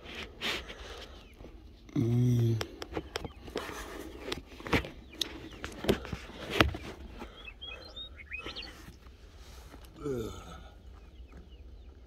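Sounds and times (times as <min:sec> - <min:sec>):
high bird chirps: 0:02.8 - 0:09.1.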